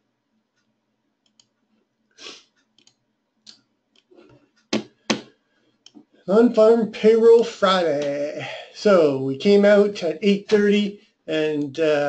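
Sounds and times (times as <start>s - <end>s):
computer mouse clicks: 0.6s - 1.6s, 2.6s - 4.2s.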